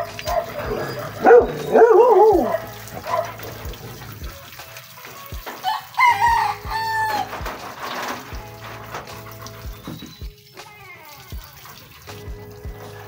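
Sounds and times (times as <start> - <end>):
rooster crowing: 5.6 - 7.4.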